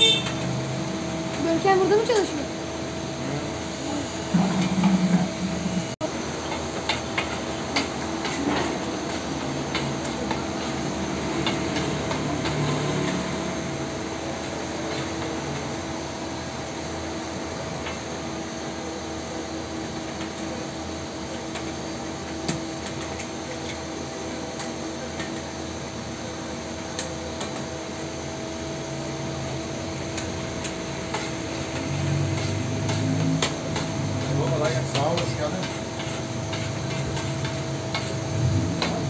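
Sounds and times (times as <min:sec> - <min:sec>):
steady hum and hiss: 0:00.0 - 0:39.0
metal spatula scraping griddle: 0:31.1 - 0:39.0.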